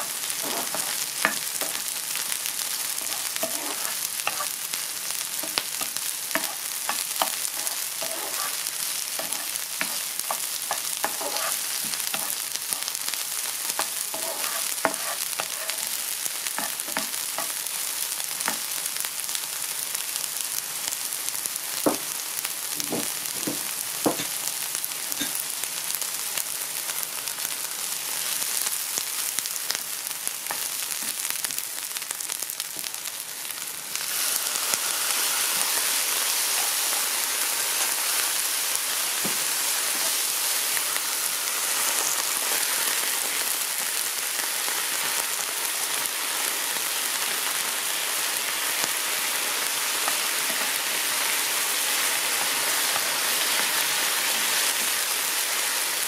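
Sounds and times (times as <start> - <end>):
vegetables sizzling in oil: 0.0 - 56.0
wooden spatula stirring: 3.0 - 4.5, 6.3 - 12.4, 13.8 - 15.8.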